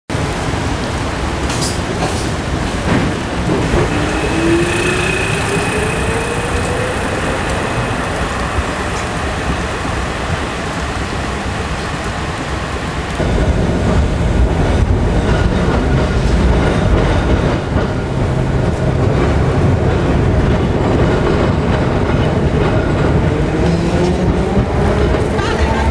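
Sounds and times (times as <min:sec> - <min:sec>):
rain: 0:00.1 - 0:25.9
tram running on rails: 0:00.1 - 0:25.9
rising whine: 0:02.7 - 0:12.0.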